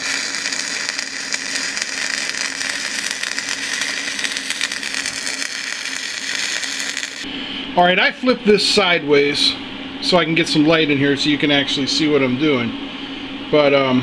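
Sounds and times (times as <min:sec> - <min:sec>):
welding arc crackling hiss: 0:00.0 - 0:07.3.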